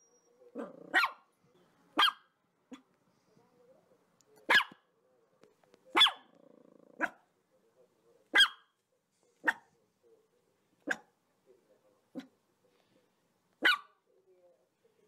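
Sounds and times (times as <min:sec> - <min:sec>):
dog growling: 0:00.5 - 0:01.0, 0:06.2 - 0:07.2
dog barking: 0:00.5 - 0:01.3, 0:01.9 - 0:02.9, 0:04.4 - 0:04.9, 0:05.9 - 0:06.4, 0:07.0 - 0:07.3, 0:08.3 - 0:08.7, 0:09.4 - 0:09.8, 0:10.8 - 0:11.1, 0:13.6 - 0:14.0.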